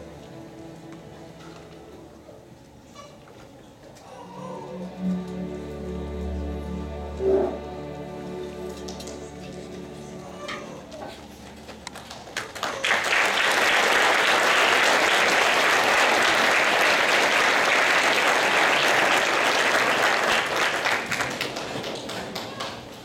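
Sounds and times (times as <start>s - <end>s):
audience applauding: 11.8s - 23.0s.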